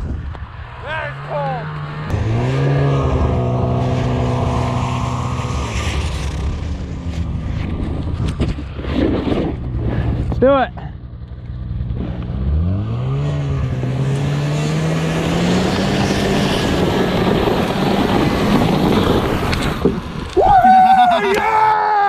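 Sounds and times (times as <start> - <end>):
snowmobile engine accelerating: 0.5 - 10.3, 11.7 - 19.8
sled sliding on snow: 5.4 - 7.8
person yelling: 20.4 - 22.0.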